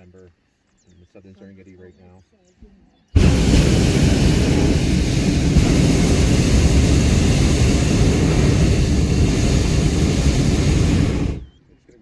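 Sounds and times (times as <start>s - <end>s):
propane burner blast: 3.2s - 11.6s.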